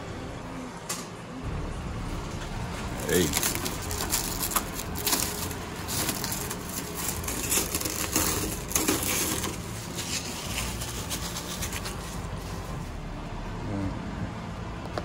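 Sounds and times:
plastic wrapping crinkling: 0:03.0 - 0:12.8.

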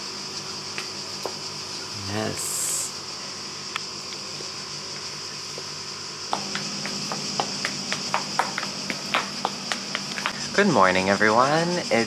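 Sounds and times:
cicadas buzzing: 0:00.0 - 0:12.0
sandal heels clicking on tiles: 0:06.3 - 0:10.4.

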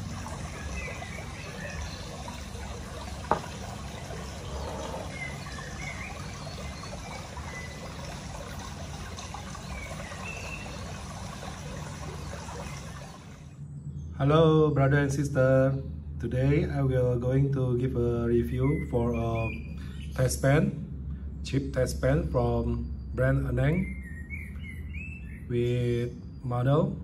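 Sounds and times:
water trickling: 0:00.0 - 0:13.6.

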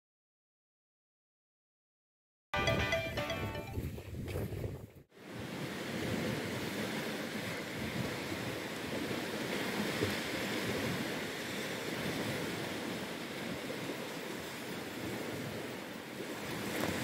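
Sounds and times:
wind noise on microphone: 0:02.7 - 0:14.1
surf washing on sandy beach: 0:05.2 - 0:17.0.

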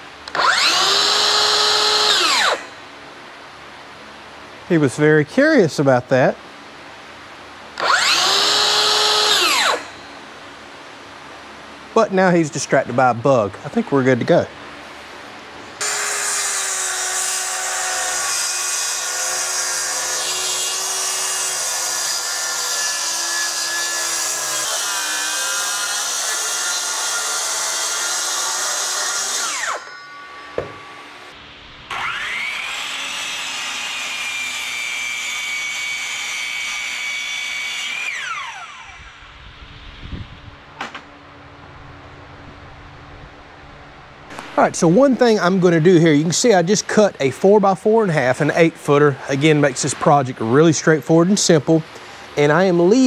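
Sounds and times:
saw blade whine: 0:00.0 - 0:03.0, 0:07.7 - 0:10.4, 0:15.8 - 0:41.0
circular saw cutting plywood: 0:00.3 - 0:02.8, 0:07.8 - 0:10.1, 0:15.8 - 0:31.3, 0:31.9 - 0:39.4.

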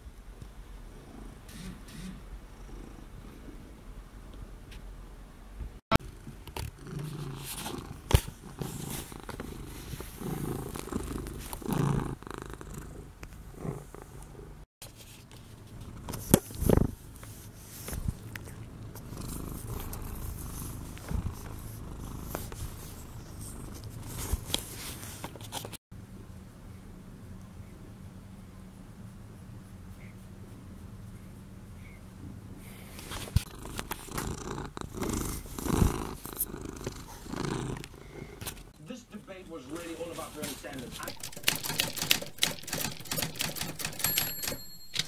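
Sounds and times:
fur rubbing against microphone: 0:01.5 - 0:02.2, 0:06.9 - 0:12.0
cat purring: 0:02.3 - 0:03.8, 0:06.7 - 0:14.7, 0:15.8 - 0:25.2, 0:32.6 - 0:38.5.

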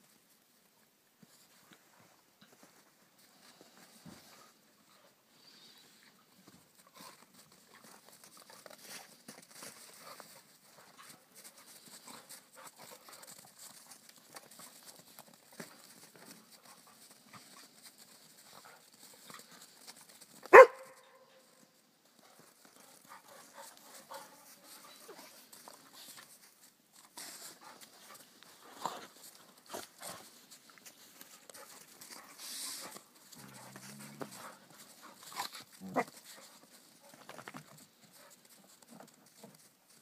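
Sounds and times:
dogs scuffling: 0:06.4 - 0:21.0, 0:22.2 - 0:40.0
dog barking: 0:20.5 - 0:21.3.

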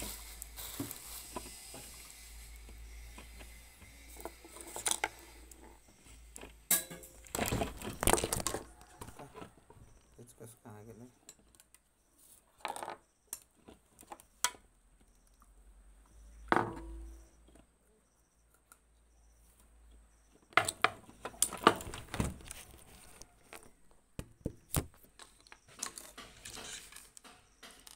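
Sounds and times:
plastic parts clicking and clattering: 0:04.1 - 0:05.7, 0:06.3 - 0:10.1, 0:20.5 - 0:27.9.

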